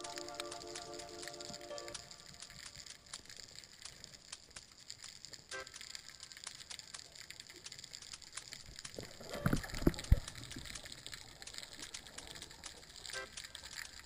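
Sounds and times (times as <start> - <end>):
underwater crackle of clicks: 0.0 - 14.0.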